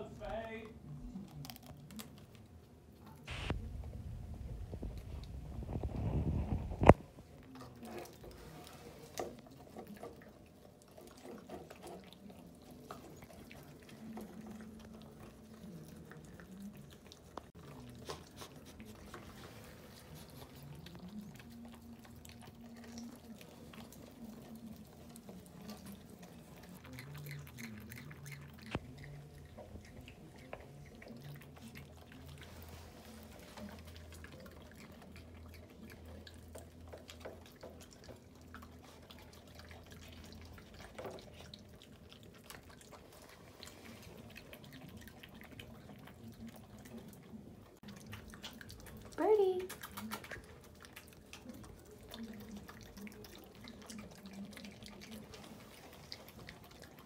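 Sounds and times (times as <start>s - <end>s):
wet smacking mouth sounds: 1.3s - 8.1s, 47.9s - 57.0s.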